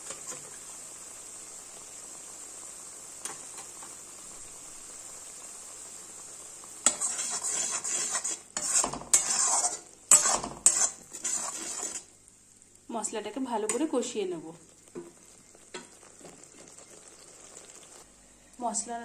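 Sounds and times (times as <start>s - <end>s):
spatula scraping a pan: 0.0s - 0.6s, 6.8s - 12.2s
paste sizzling in hot oil: 0.0s - 18.1s.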